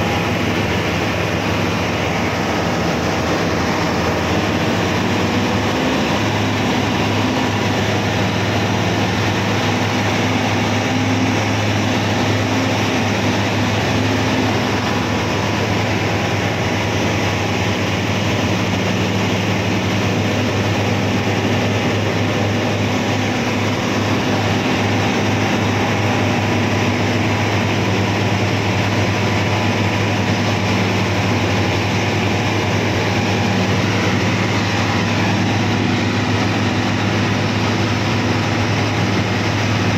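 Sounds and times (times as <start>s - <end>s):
heavy diesel engine droning: 0.0s - 39.9s.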